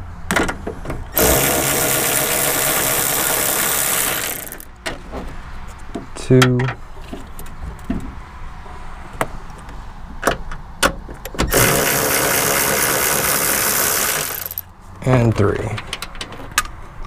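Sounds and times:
electric ratchet spinning: 0:01.2 - 0:04.7, 0:11.5 - 0:14.7.

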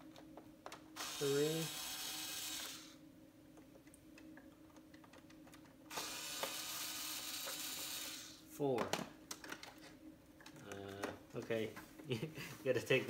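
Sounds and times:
cordless electric screwdriver running: 0:01.0 - 0:03.0, 0:05.9 - 0:08.4.

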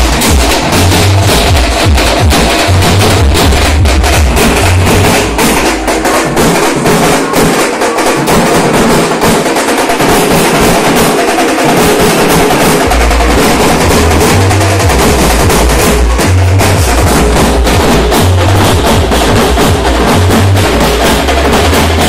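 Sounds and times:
deep bass: 0:00.0 - 0:06.0, 0:12.8 - 0:22.0
fast procession drumming: 0:00.0 - 0:22.0.

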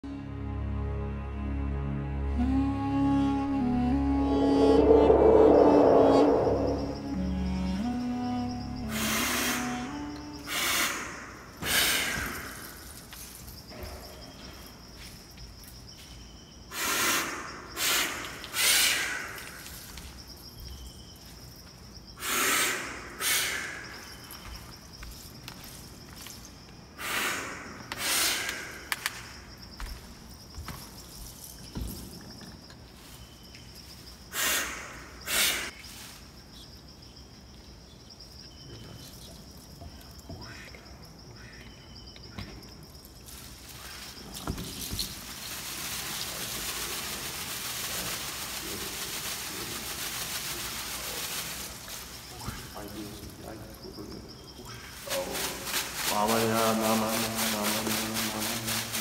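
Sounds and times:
person spraying liquid from mouth: 0:08.8 - 0:10.8
birds chirping faintly: 0:12.3 - 0:49.8.

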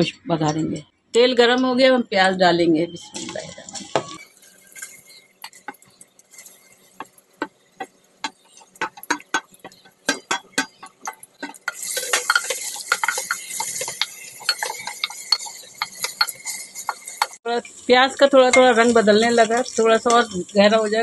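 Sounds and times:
onions sizzling in oil: 0:03.2 - 0:21.0
spoon knocking and scraping cooker: 0:06.9 - 0:17.4.

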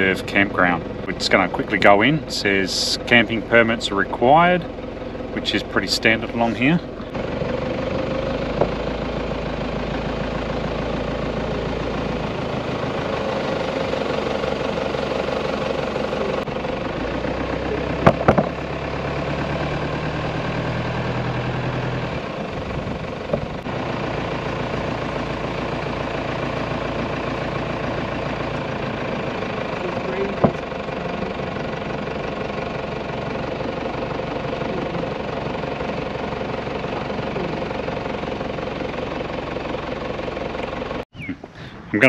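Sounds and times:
car engine running: 0:00.0 - 0:42.0
sharp knocks: 0:18.0 - 0:18.6.

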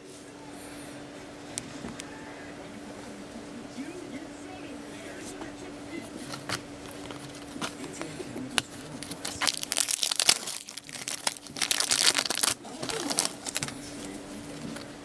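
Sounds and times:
foil wrapper crinkling: 0:08.9 - 0:14.9.

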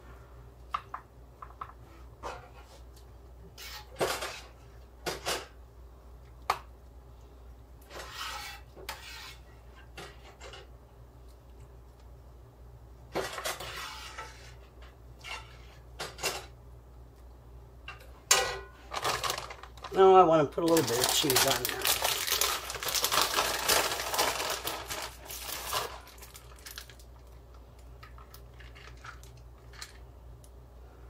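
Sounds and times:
metal spoon scraping pans: 0:13.2 - 0:16.4
plastic bag crinkling: 0:18.9 - 0:30.0.

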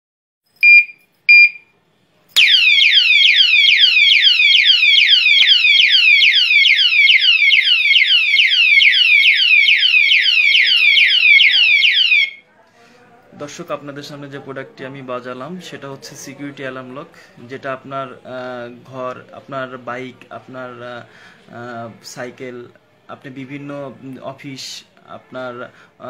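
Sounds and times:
short beeps: 0:00.6 - 0:01.7
electronic alarm siren: 0:02.4 - 0:12.4.

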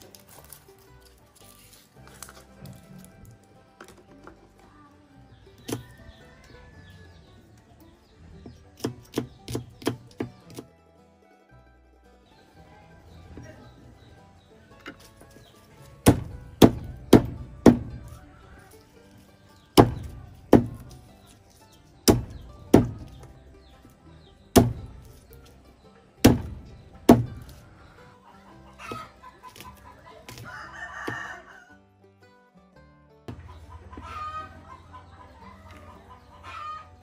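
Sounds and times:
wooden mallet thuds on wood: 0:08.8 - 0:10.6, 0:16.0 - 0:18.1, 0:19.8 - 0:21.0, 0:22.0 - 0:23.3, 0:24.5 - 0:25.1, 0:26.2 - 0:27.6.

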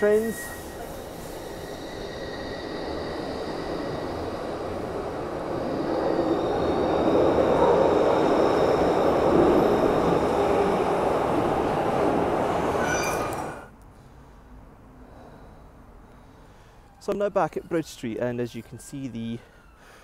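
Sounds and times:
subway train rolling rumble: 0:00.0 - 0:13.7.

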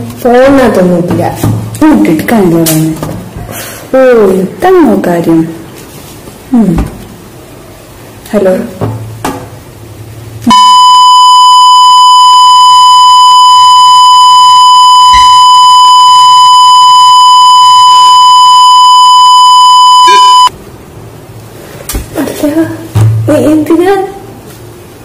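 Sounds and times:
high-pitched censor beep: 0:10.4 - 0:20.5.

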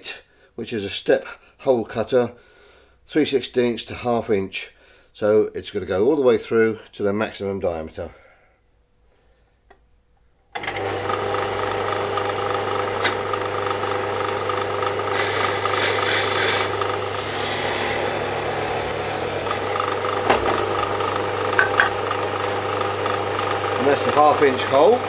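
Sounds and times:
drill press running: 0:10.6 - 0:25.0
drill bit cutting sheet metal: 0:15.0 - 0:22.6.

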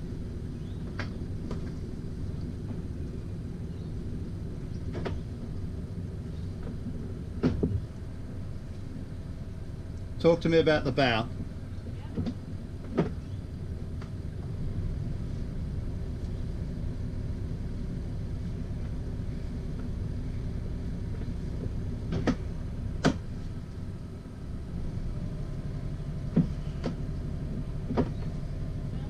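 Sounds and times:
boat engine rumble: 0:00.0 - 0:29.0.

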